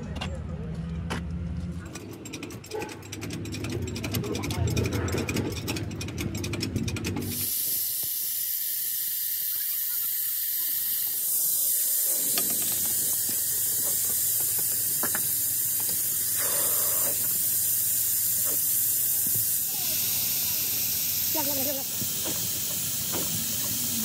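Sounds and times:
rapid mechanical clicking: 1.8 - 24.0
compressed air hissing: 7.2 - 24.0.

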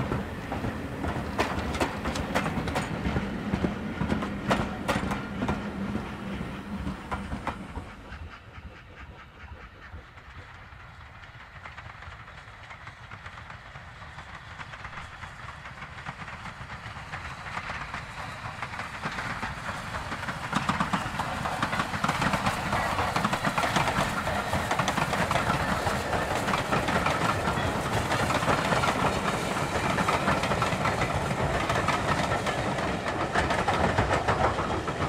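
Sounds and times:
wheels clicking over rail joints: 0.0 - 5.7, 10.2 - 35.0
steam train rumble: 0.0 - 35.0.

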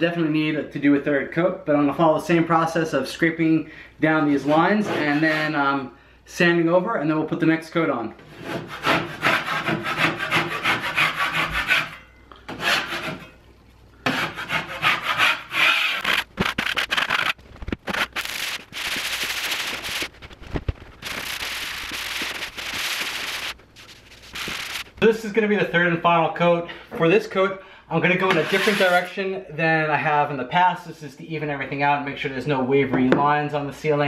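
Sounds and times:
taping knife scraping a ceiling: 4.4 - 5.6, 8.3 - 13.3, 14.0 - 20.0, 28.2 - 29.1
hand-sanding with a sanding block: 8.4 - 12.0, 14.1 - 16.2, 28.3 - 29.1.

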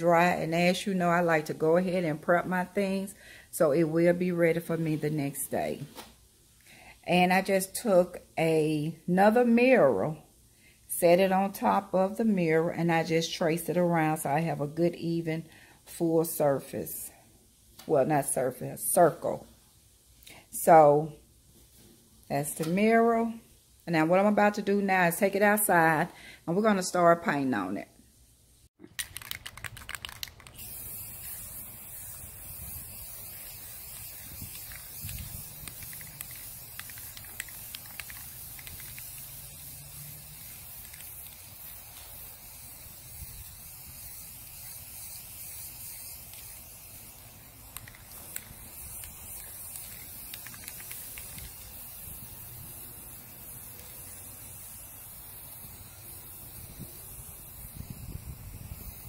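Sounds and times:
aerosol spray can hissing: 0.0 - 5.5, 29.0 - 59.0.

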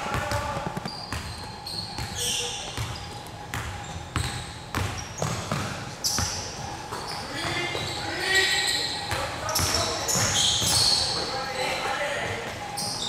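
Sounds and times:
basketball bouncing on court: 0.0 - 11.4
shoe squeaks: 0.0 - 13.0.

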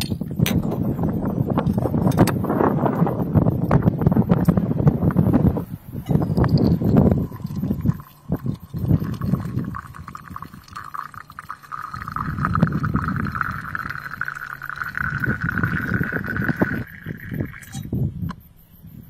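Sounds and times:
water pouring into teapot: 6.0 - 17.9.

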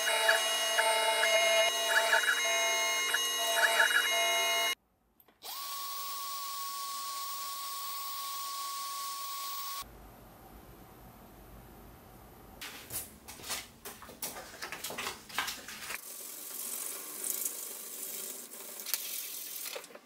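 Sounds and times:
mill spindle whining: 0.0 - 4.8.

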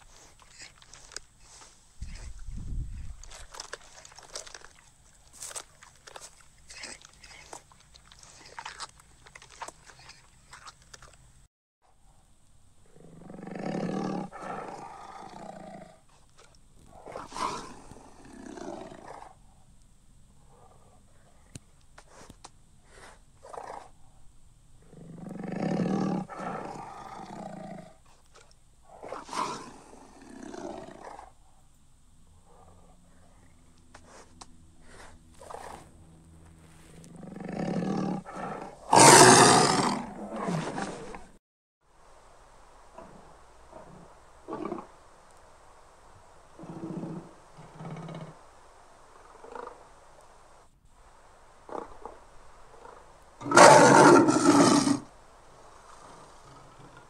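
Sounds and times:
tiger roaring: 12.8 - 16.0, 16.9 - 19.4, 24.8 - 28.0, 28.9 - 31.4, 37.1 - 41.3, 43.0 - 44.9, 46.6 - 48.4, 51.7 - 55.1
tiger growling: 12.8 - 19.6, 24.8 - 31.6, 37.0 - 41.3, 42.9 - 45.0, 46.6 - 48.5, 49.2 - 49.9, 51.6 - 57.0.

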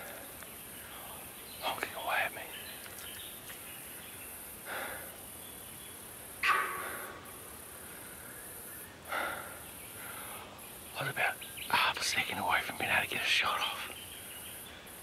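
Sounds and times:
deer honking alarm call: 6.4 - 7.3.

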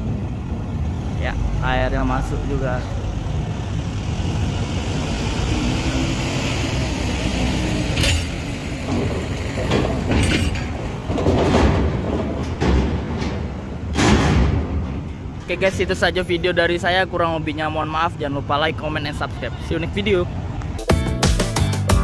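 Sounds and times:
truck diesel engines running: 0.0 - 20.8
loud clanks on steel ramp: 7.9 - 15.5.

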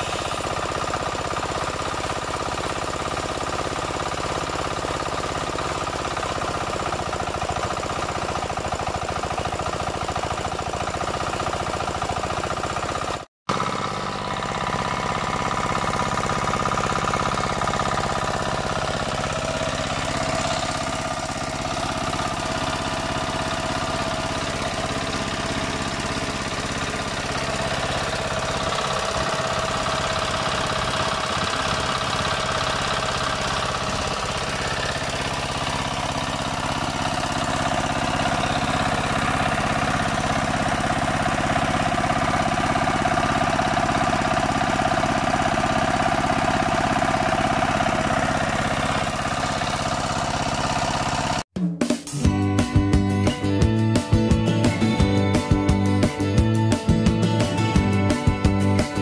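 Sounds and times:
diesel engine running: 0.0 - 51.5, 52.2 - 59.0.

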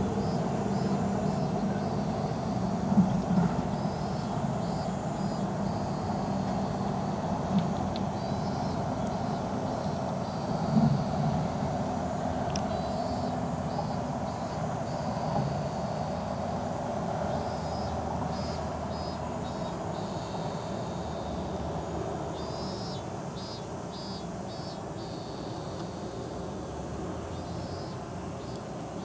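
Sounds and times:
highway traffic rumble: 0.0 - 29.0
high chirping call: 17.3 - 21.5, 22.3 - 26.0.

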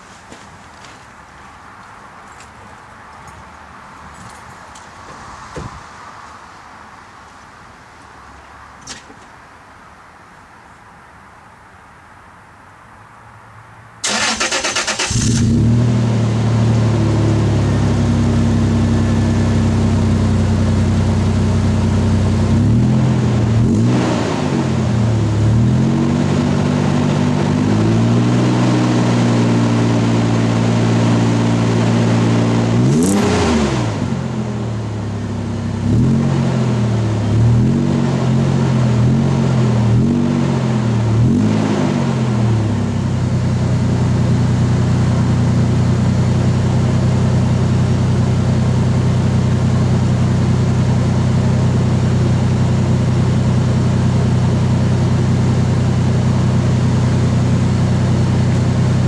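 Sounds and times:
car engine idling and revving: 14.0 - 59.0.

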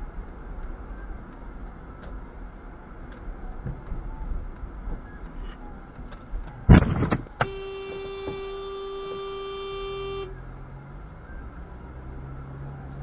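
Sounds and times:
vehicle collision crash: 6.7 - 8.5
car horn steady note: 7.4 - 10.5.

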